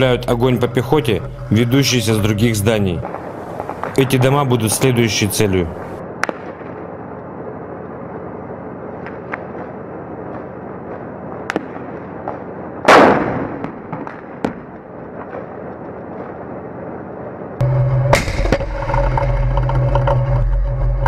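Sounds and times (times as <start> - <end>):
background rumble: 0.0 - 21.0
gunfire cracks: 11.5 - 15.5.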